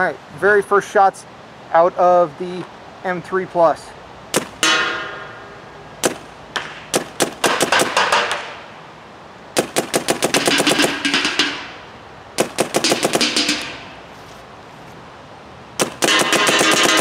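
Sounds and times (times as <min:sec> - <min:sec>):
paintball marker firing: 0:04.4 - 0:04.8, 0:06.0 - 0:08.6, 0:09.6 - 0:11.7, 0:12.4 - 0:13.8, 0:15.8 - 0:17.0
lingering ringing: 0:04.6 - 0:06.0, 0:10.5 - 0:12.0.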